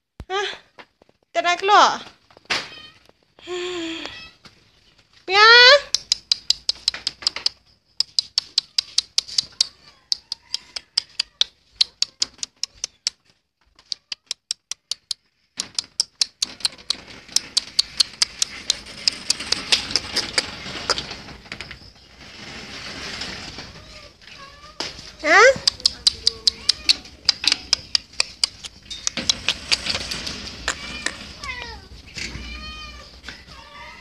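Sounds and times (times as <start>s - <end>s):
rapid regular clicking: 5.9s - 11.2s, 14.3s - 21.1s
rustling noise: 15.2s - 27.2s, 27.8s - 34.0s.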